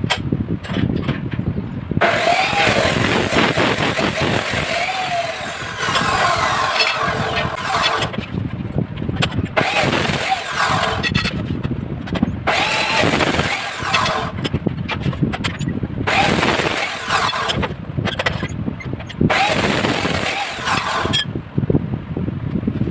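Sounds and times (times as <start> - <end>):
cut-off saw grinding steel: 2.0 - 8.3, 9.4 - 11.5, 12.5 - 14.6, 16.1 - 17.7, 19.3 - 21.3.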